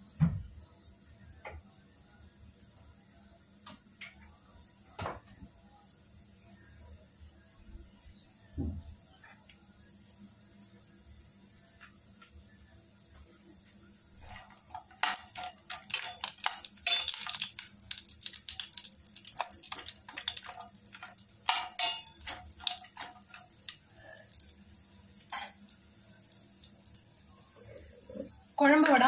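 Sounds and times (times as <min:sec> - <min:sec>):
frying crackles: 0:14.1 - 0:29.0
steel spoon scraping pan: 0:14.2 - 0:17.6, 0:20.4 - 0:23.5.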